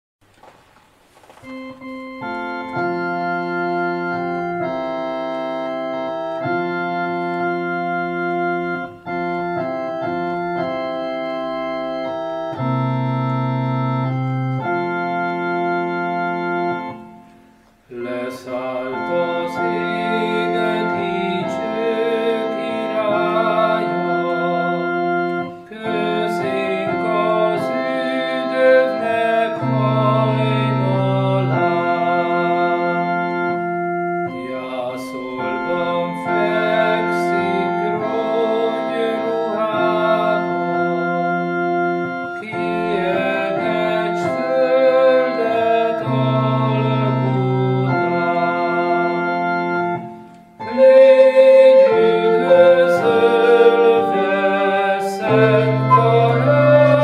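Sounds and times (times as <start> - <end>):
electronic organ chords: 1.4 - 57.0
person singing: 17.9 - 33.6, 34.3 - 41.5, 42.2 - 49.2, 50.6 - 57.0.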